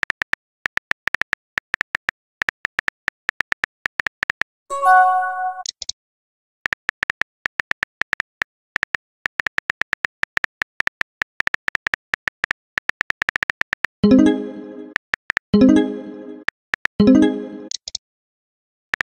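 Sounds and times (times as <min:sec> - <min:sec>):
message sent chime: 0:04.7 - 0:05.7, 0:14.0 - 0:14.9.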